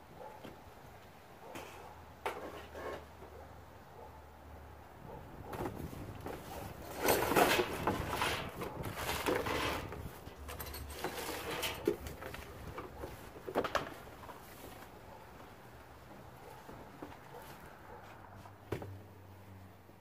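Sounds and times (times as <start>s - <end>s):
cardboard scraping: 5.7s - 10.1s.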